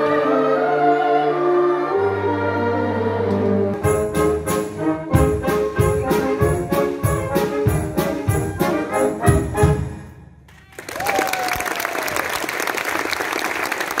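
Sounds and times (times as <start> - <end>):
wind band playing: 0.0 - 10.3
audience applause: 10.5 - 14.0.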